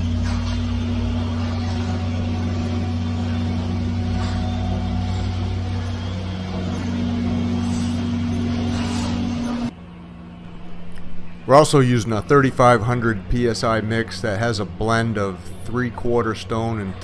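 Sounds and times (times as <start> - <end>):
diesel engine droning: 0.0 - 17.0.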